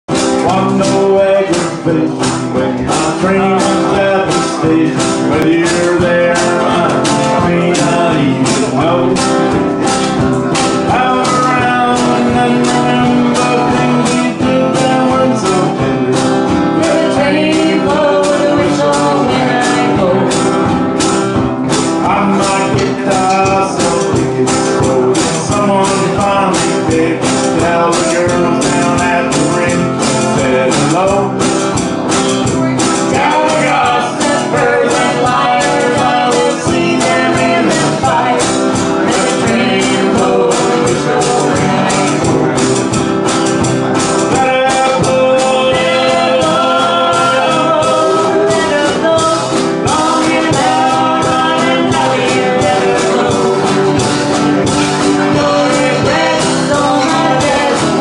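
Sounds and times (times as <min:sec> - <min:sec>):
banjo: 0:00.1 - 0:58.0
steady drum beat: 0:00.1 - 0:58.0
strummed acoustic guitar: 0:00.1 - 0:58.0
woman singing: 0:16.7 - 0:20.8, 0:33.1 - 0:42.6, 0:44.4 - 0:58.0.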